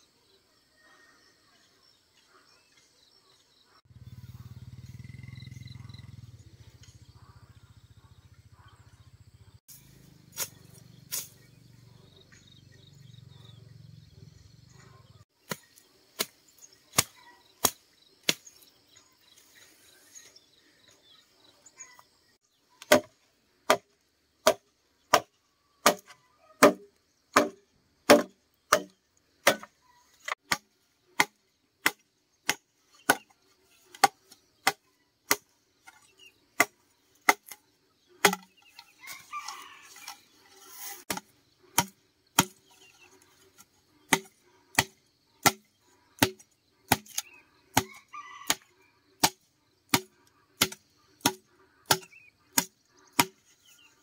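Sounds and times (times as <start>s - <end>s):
machete chopping bamboo: 15.4s - 18.5s, 22.8s - 37.6s, 38.2s - 39.3s, 40.8s - 43.0s, 43.6s - 48.6s, 49.2s - 53.5s.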